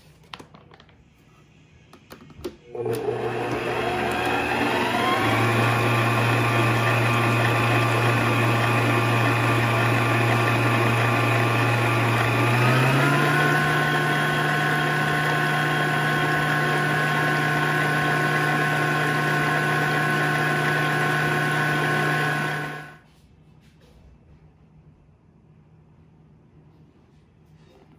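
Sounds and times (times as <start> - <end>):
electric hand mixer running: 2.7 - 23.0.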